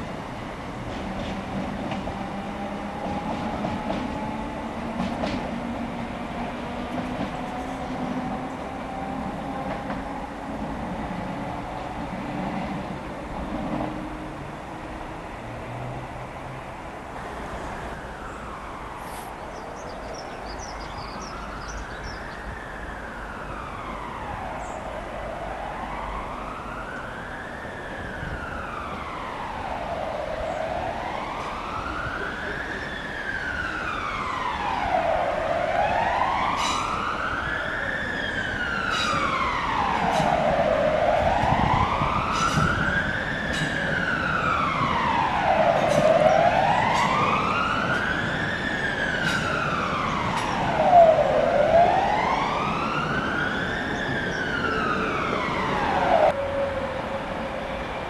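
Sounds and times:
emergency siren wailing: 21.2 - 58.0.

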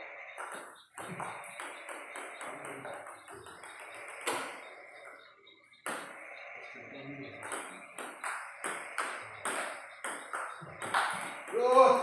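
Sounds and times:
table tennis ball clicking: 7.4 - 11.8.

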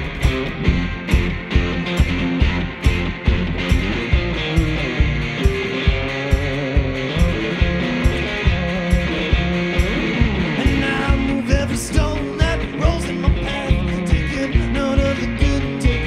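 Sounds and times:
electric guitars: 0.0 - 16.0
kick drum beat: 0.0 - 16.0
upright bass: 0.0 - 16.0
man singing: 10.6 - 16.0.

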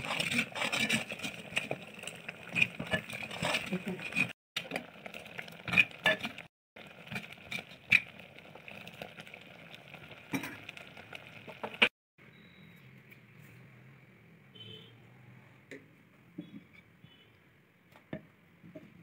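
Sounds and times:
syrup bubbling in a pot: 0.0 - 11.9.

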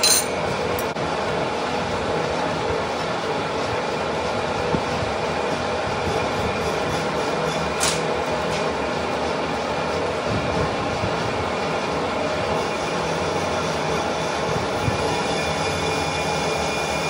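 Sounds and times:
sharp metal clink: 0.0 - 0.4
metal lathe humming and rattling: 0.0 - 17.0.

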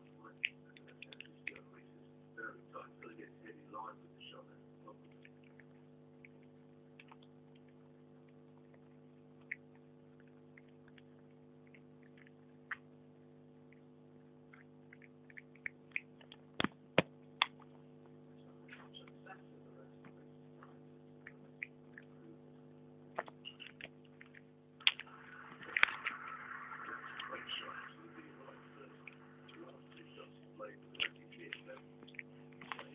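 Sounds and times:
steady electrical hum: 0.0 - 32.9
dog chewing crunching: 5.0 - 13.1, 30.9 - 32.9.

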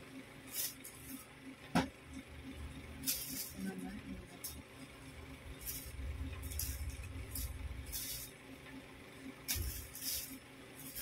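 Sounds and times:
low handling rumble: 5.1 - 7.9.

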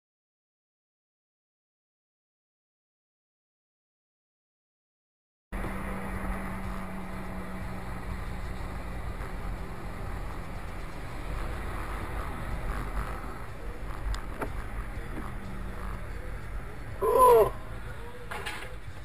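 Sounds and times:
car driving on wet road: 5.6 - 17.0.

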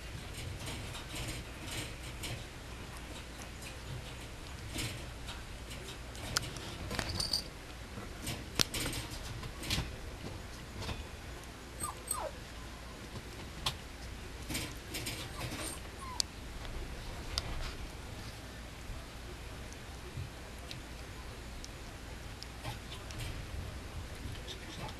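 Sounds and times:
puppy whimpering: 11.8 - 12.4, 15.2 - 16.2.

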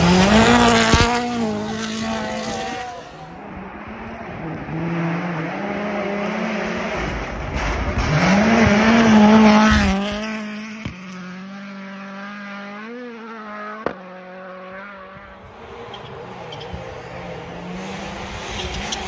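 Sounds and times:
rally car engine revving: 0.0 - 19.0.

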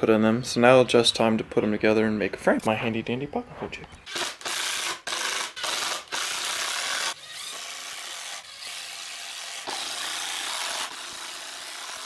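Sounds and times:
power driver driving screws: 4.1 - 12.0.

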